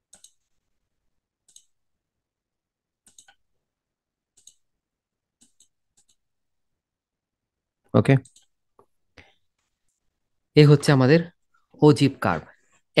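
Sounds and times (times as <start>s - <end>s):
computer mouse clicking: 0.0s - 0.6s, 1.4s - 1.8s, 3.0s - 3.5s, 4.3s - 4.7s, 5.4s - 6.3s, 8.2s - 8.9s.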